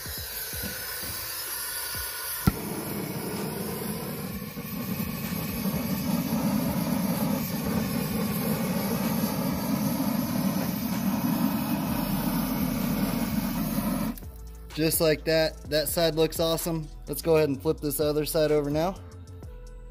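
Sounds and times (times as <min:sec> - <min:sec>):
gas torch flame rushing: 0:00.0 - 0:14.3.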